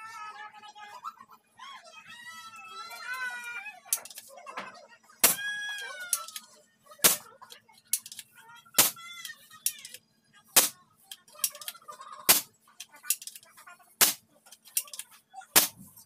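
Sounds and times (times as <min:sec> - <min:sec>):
children calling out: 0:05.2 - 0:06.5.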